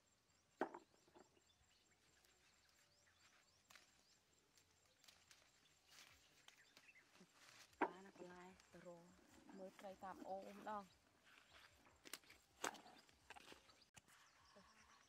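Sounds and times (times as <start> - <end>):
leaves clicking and snapping: 2.2 - 8.8, 12.0 - 13.8.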